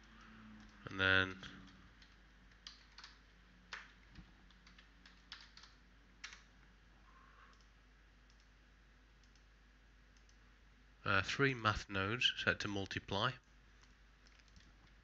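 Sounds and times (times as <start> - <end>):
mouse clicks: 7.5 - 8.5, 9.2 - 9.5, 10.1 - 10.4.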